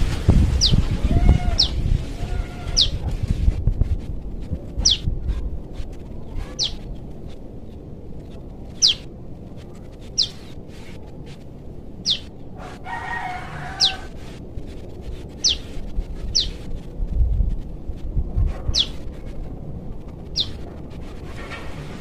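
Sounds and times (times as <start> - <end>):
distant rooster crowing: 0.6 - 3.0, 12.1 - 14.4
young bird high-pitched calls: 0.6 - 3.0, 4.8 - 5.1, 6.3 - 7.0, 8.7 - 9.1, 10.0 - 10.6, 12.0 - 14.2, 15.4 - 16.6, 18.7 - 19.2, 20.3 - 20.6.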